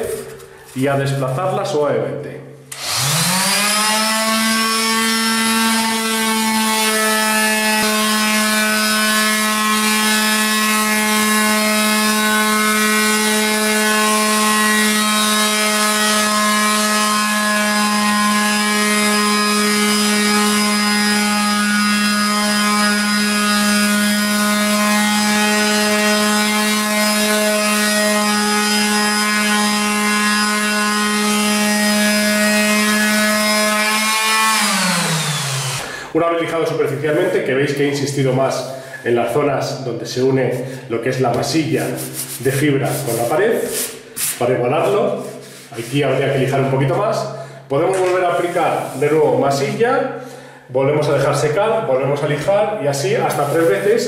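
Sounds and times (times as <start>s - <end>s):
electric sander sanding wall: 2.7s - 37.3s, 41.8s - 46.7s, 48.3s - 49.7s.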